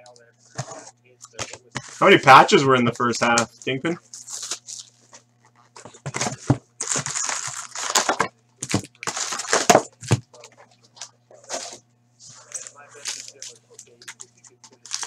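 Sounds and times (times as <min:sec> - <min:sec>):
faint electrical hum: 0:00.0 - 0:15.0
foil packs crackling and rustling: 0:03.6 - 0:15.0
packaging crinkling and tearing: 0:04.1 - 0:11.8, 0:12.4 - 0:15.0.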